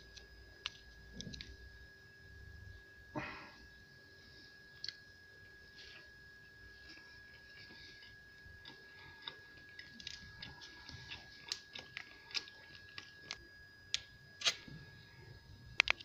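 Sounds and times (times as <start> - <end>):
person chewing pastry: 6.8 - 14.7.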